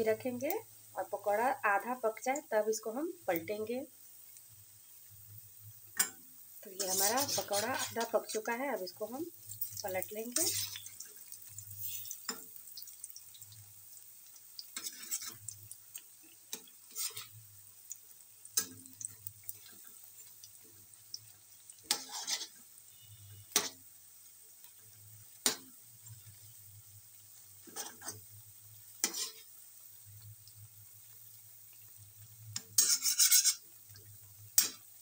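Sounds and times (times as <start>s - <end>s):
deep frying sizzle: 0.0s - 35.0s
metal spoon scraping iron pan: 6.7s - 8.4s, 10.3s - 10.9s, 11.8s - 12.5s, 14.8s - 15.4s, 16.9s - 17.4s, 21.9s - 22.6s, 29.0s - 29.5s, 32.6s - 33.6s.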